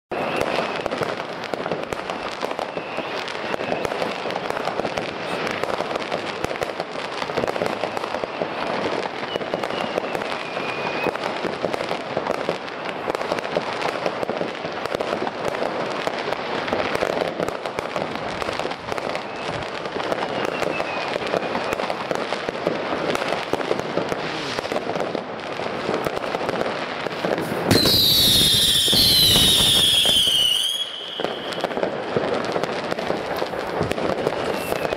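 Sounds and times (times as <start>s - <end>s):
high falling firework whistle: 0.1s - 5.5s, 7.4s - 11.5s, 18.9s - 22.0s, 27.2s - 32.4s, 33.5s - 34.9s
firework whistles: 0.1s - 24.9s, 25.9s - 34.9s
fireworks crackling and banging: 0.1s - 34.9s.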